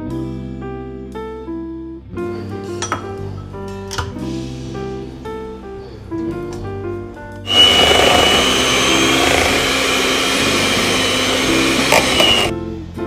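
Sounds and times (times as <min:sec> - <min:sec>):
electric hand mixer whirring: 0:07.5 - 0:12.5.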